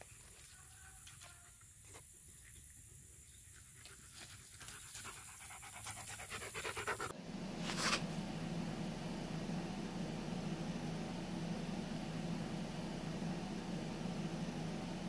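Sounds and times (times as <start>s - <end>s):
dog panting: 3.5s - 7.1s
steady low hum: 5.7s - 15.0s.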